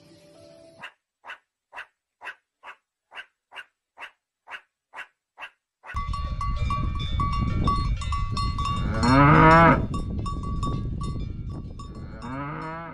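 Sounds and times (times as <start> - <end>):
cowbells clinking: 6.0 - 12.9
cow mooing: 8.8 - 9.9, 12.0 - 12.9.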